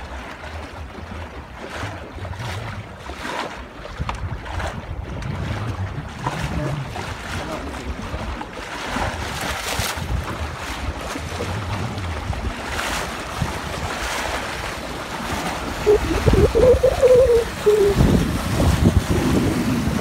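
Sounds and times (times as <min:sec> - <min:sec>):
water rushing past hull: 0:00.0 - 0:20.0
wind buffeting microphone: 0:03.8 - 0:20.0
short wavering tone: 0:15.9 - 0:18.0.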